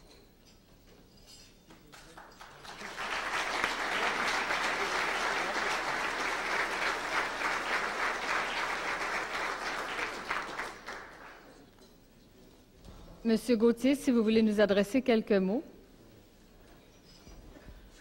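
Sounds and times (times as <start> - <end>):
crowd applause: 2.2 - 11.6.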